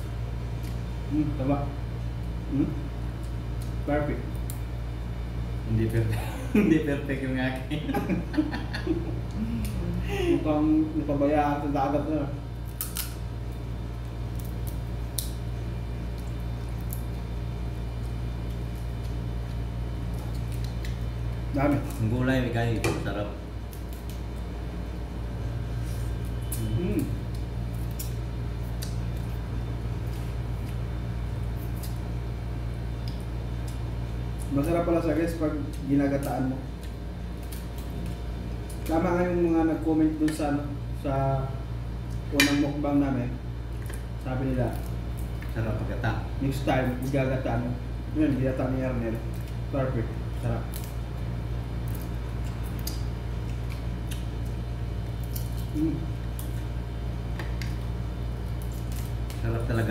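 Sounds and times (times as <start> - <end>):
steady low hum: 0.0 - 59.9
clicks and smacks of eating: 3.1 - 4.7, 12.6 - 22.0, 26.2 - 30.8, 31.4 - 34.8, 35.6 - 39.0, 51.8 - 56.7, 57.3 - 59.5
crab shell clicks and cracks: 12.6 - 13.2, 14.0 - 15.4, 50.6 - 51.0, 51.8 - 56.6, 58.5 - 59.4.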